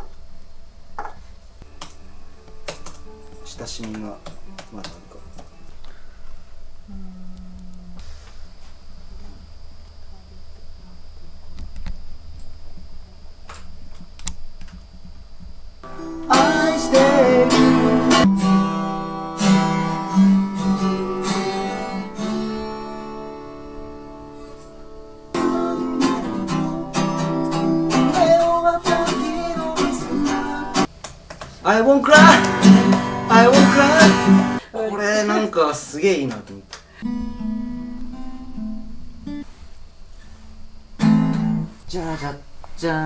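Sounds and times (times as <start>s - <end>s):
thin high whine: 0.0s - 30.9s, 31.6s - 36.3s, 36.9s - 43.0s
acoustic guitar picked and strummed: 15.8s - 30.9s, 31.6s - 34.6s, 37.0s - 41.8s
person singing: 15.9s - 18.3s, 25.4s - 30.9s, 31.7s - 34.6s.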